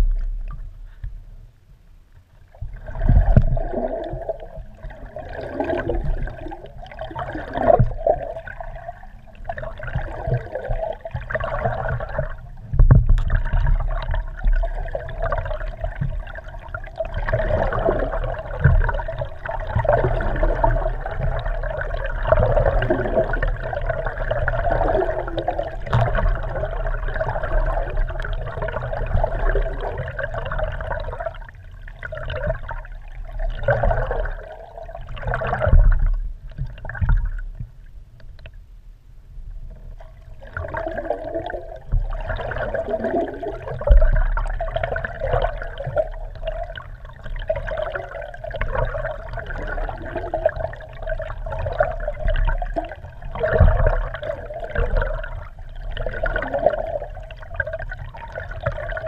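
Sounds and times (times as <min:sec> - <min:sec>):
underwater water rushing and gurgling: 0:00.0 - 0:59.0
low knocks: 0:12.7 - 0:13.4.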